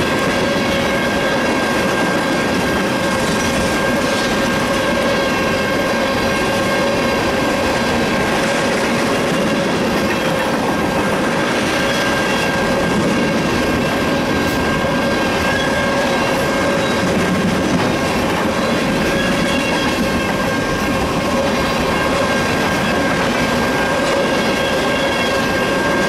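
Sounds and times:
train wheels rumbling on rails: 0.0 - 26.0
high-pitched squeal: 17.9 - 26.0.

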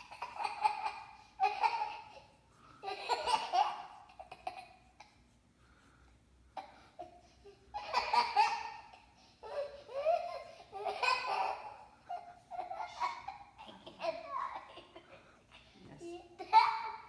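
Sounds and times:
young child laughing: 2.8 - 5.1, 7.8 - 15.3.

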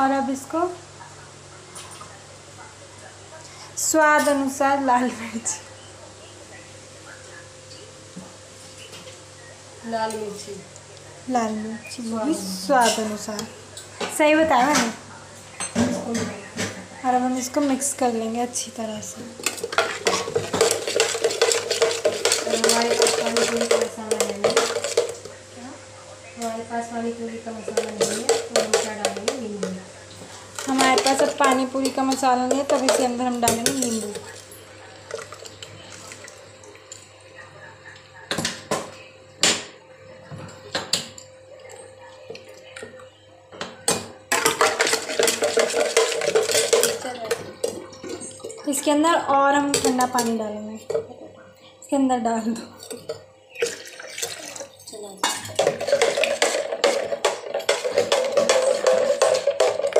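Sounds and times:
metal spoon stirring in a mug: 19.4 - 25.3, 30.5 - 36.2, 44.3 - 48.9, 52.6 - 59.9.

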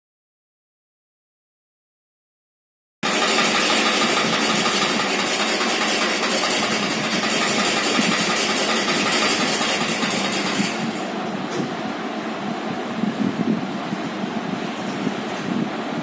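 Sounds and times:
treadle sewing machine running: 3.0 - 11.2.

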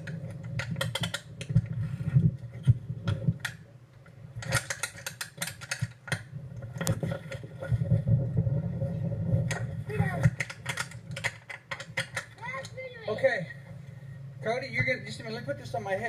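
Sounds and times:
camera handling clicks and rattles: 0.0 - 1.8, 2.4 - 7.4, 9.5 - 12.7
steady low hum: 0.0 - 16.0.

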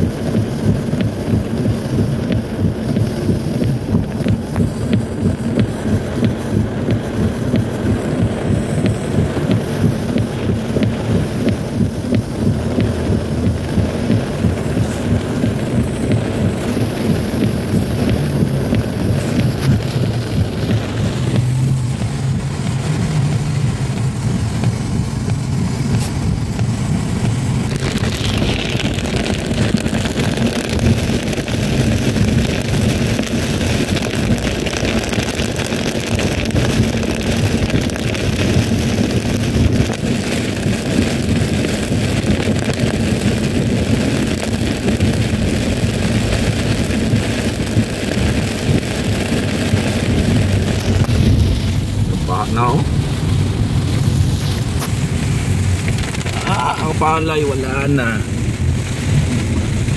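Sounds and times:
car engine and road rumble: 0.0 - 59.9
rain hissing: 0.0 - 59.9
wet tyres hissing: 0.0 - 59.9.

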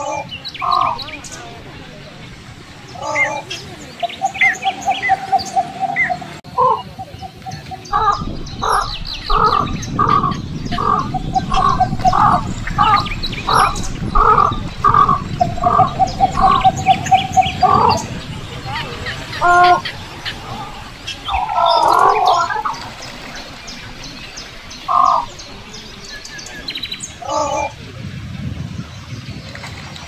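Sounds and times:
bird trilling: 0.0 - 1.6, 2.9 - 23.0, 24.2 - 25.5
songbirds chirping: 0.0 - 30.0.

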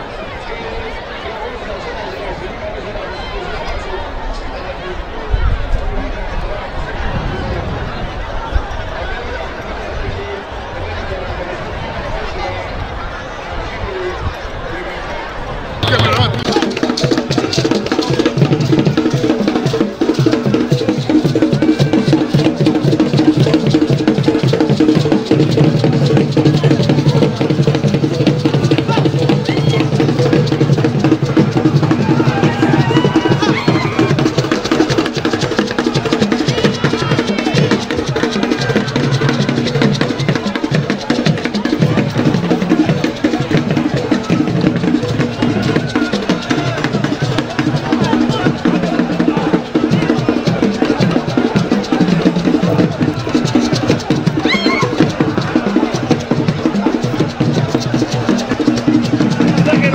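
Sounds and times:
music with fast drumming: 15.8 - 59.9.

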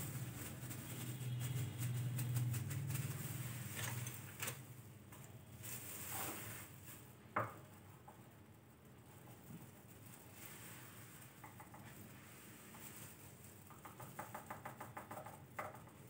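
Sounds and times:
faint rustles: 5.2 - 13.7.

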